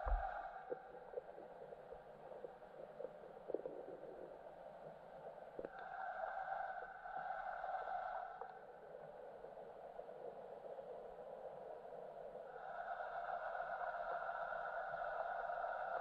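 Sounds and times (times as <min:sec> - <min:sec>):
faint underwater clicks: 0:00.0 - 0:05.9
faint underwater hum: 0:00.0 - 0:13.0.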